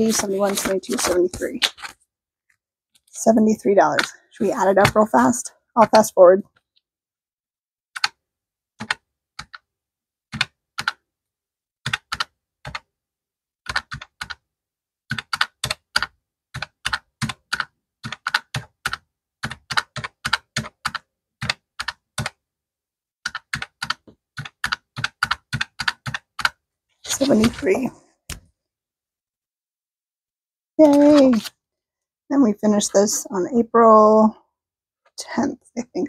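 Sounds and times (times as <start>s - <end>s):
calculator keys clicking: 15.1s - 22.4s, 23.3s - 26.6s.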